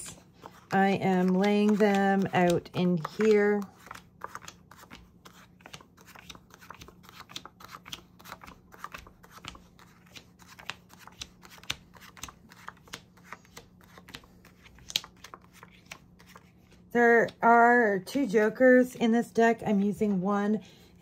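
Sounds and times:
playing cards tapping and sliding: 0.0 - 17.4.

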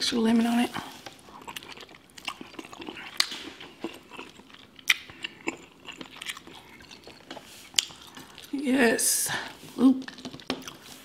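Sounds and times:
close chewing: 0.7 - 11.0.

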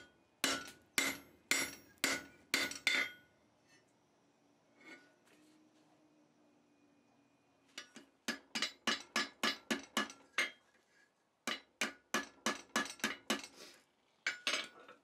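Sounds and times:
hammer striking metal on anvil: 0.0 - 3.3, 7.8 - 10.6, 11.5 - 13.5.

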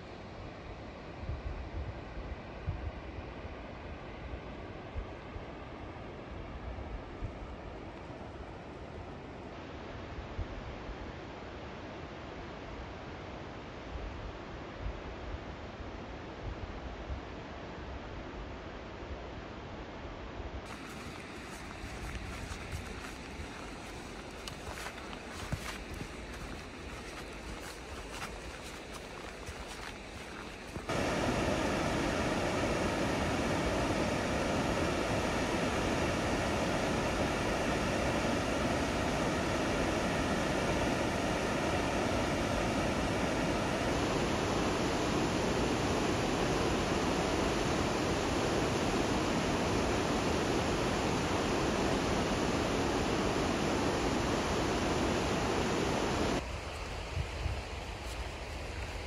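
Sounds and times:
river rapids rushing: 20.7 - 44.7.

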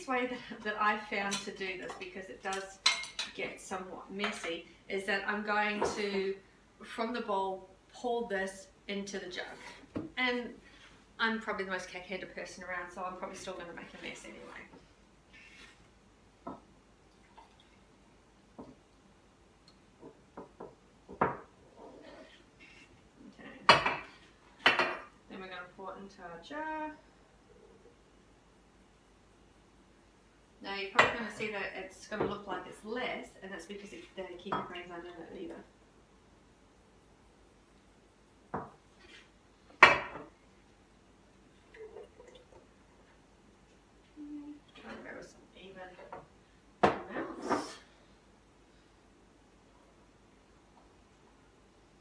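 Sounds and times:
dishes clinking: 1.3 - 3.4.

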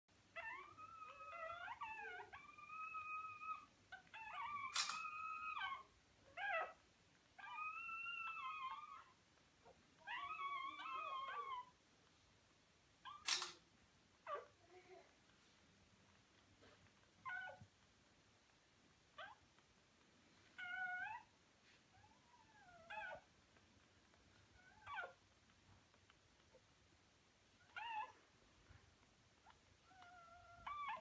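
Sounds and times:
puppies whining: 0.3 - 11.8, 13.0 - 13.6, 16.1 - 17.8, 19.1 - 19.7, 20.5 - 23.4, 24.0 - 26.7, 27.5 - 31.0
sharp clicks: 13.2 - 13.6.

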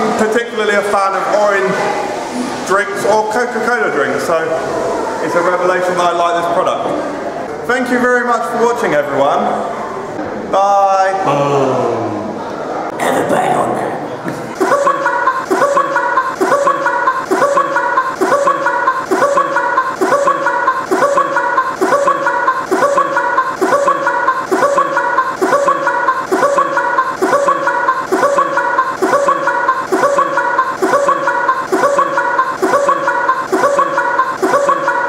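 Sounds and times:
men laughing hard: 14.3 - 35.0.

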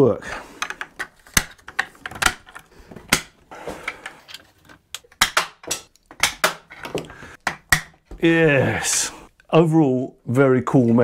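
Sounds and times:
plastic parts clicking: 0.5 - 8.0.

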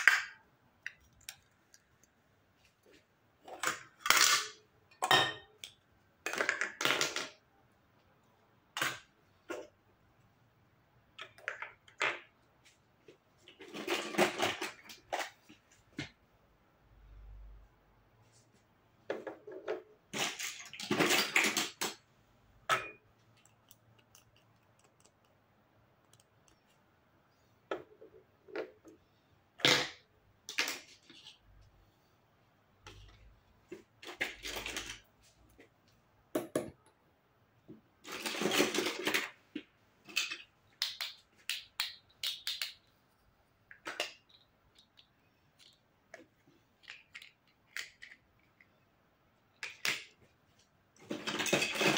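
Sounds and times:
plastic toys clicking on table: 40.2 - 42.8, 46.8 - 48.6.

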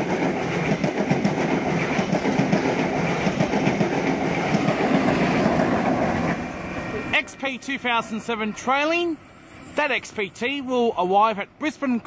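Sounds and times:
train wheels clattering over rails: 0.0 - 6.5.

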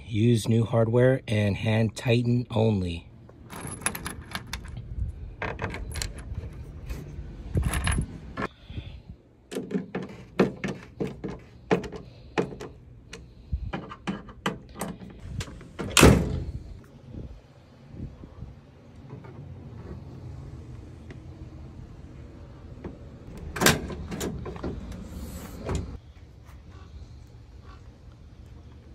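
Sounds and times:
metal bolts and washers clinking: 3.4 - 8.5.

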